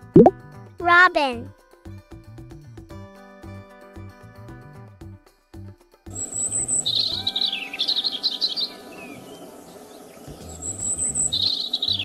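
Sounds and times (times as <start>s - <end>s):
robin singing: 6.2s - 12.0s.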